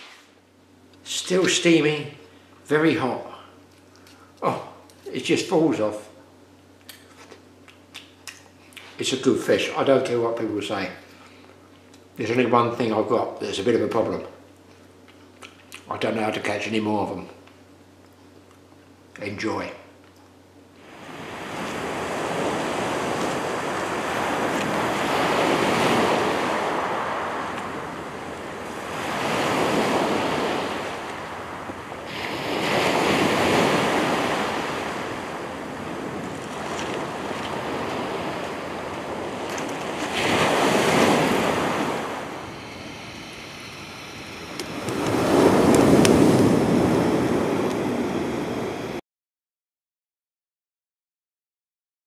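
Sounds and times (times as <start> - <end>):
waves breaking on shingle beach: 20.9 - 48.9.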